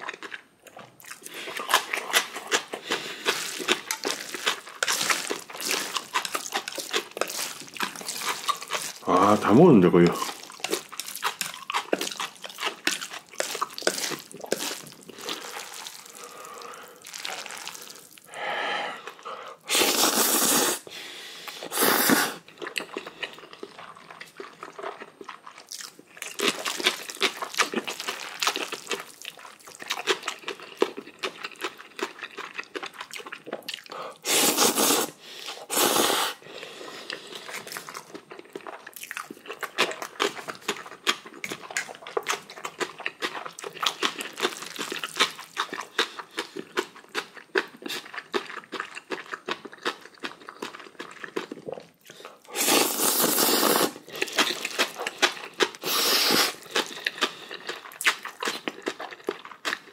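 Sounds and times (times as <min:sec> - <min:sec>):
wet chewing and mouth clicks: 0:00.0 - 0:18.4, 0:19.0 - 0:59.9
noodle slurps: 0:01.1 - 0:18.3, 0:19.0 - 0:24.4, 0:34.2 - 0:38.0, 0:51.0 - 0:58.7.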